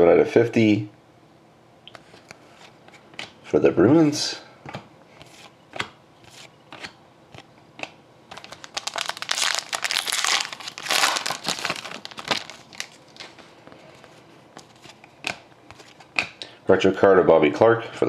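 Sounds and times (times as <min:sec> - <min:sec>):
foil wrapper crinkling: 0:08.3 - 0:13.5.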